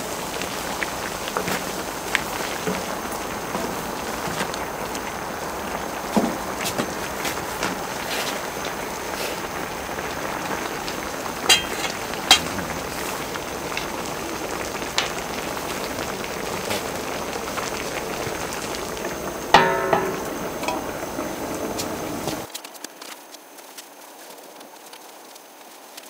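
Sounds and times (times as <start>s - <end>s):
stew bubbling and sizzling: 0.0s - 26.0s
metal lid clanking onto pan: 11.5s - 12.5s, 19.5s - 21.3s.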